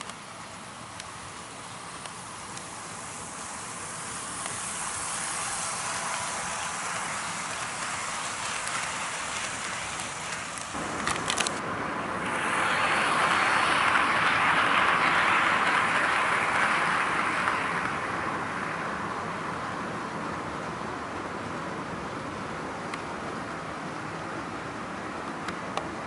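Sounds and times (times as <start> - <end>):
model train rumbling on track: 0.0 - 26.0
sharp clicks: 7.5 - 11.6.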